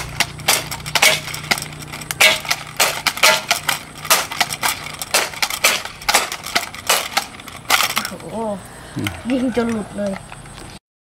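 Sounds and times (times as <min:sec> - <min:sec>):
toy gun firing sharp clicks: 0:00.0 - 0:08.1.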